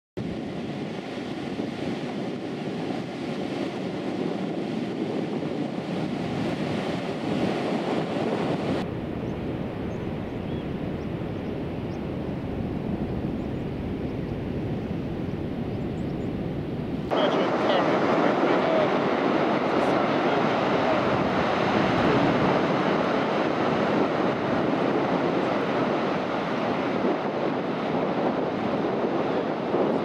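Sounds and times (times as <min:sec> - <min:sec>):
surf breaking on beach: 0:00.2 - 0:08.9, 0:16.8 - 0:30.0
wind buffeting microphone: 0:00.2 - 0:30.0.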